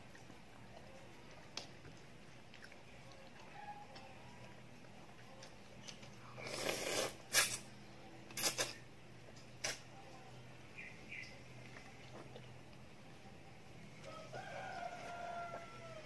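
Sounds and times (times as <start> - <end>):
noodles being slurped: 6.2 - 7.7, 8.3 - 8.8.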